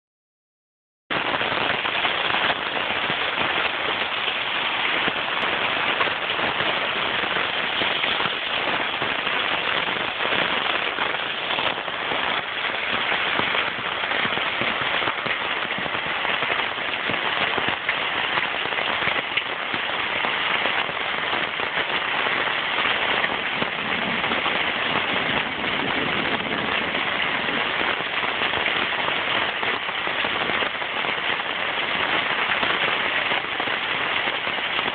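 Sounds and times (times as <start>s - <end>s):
heavy rain pouring: 1.1s - 34.9s.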